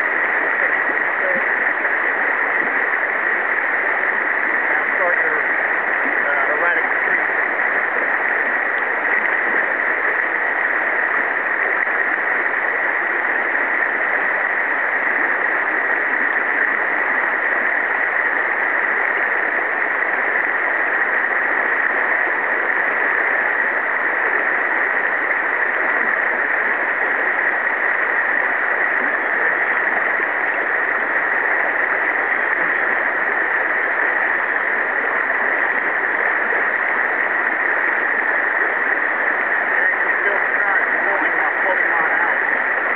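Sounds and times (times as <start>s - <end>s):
river rushing: 0.0s - 42.9s.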